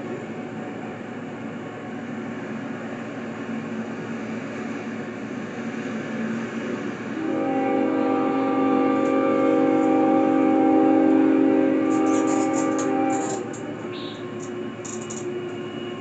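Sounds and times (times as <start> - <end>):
diesel locomotive rumble: 0.0 - 16.0
train air horn: 7.2 - 15.1.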